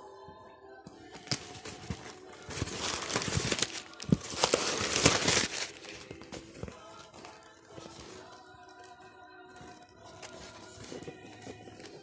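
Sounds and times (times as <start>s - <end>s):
plastic packaging crinkling: 1.2s - 12.0s.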